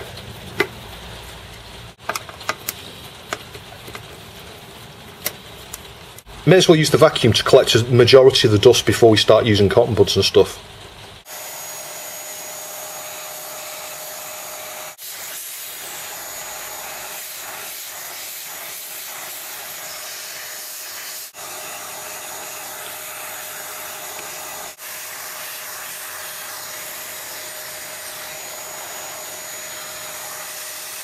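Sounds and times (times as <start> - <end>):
vacuum cleaner running: 11.2 - 31.0.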